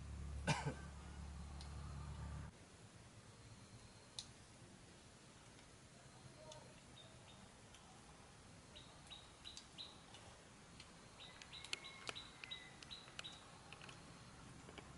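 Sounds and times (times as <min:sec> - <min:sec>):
sharp clicks: 0:09.5 - 0:14.0.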